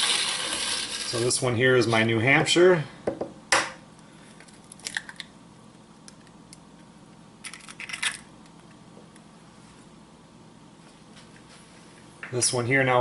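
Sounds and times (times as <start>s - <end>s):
egg shell cracking: 4.4s - 5.4s, 7.4s - 8.5s
egg shell crackling apart: 4.4s - 5.4s, 7.4s - 8.3s.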